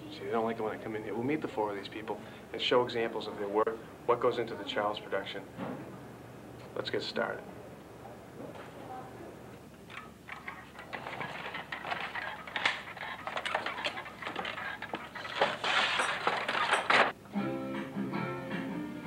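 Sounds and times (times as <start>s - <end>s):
objects clattering when handled: 9.8s - 17.2s.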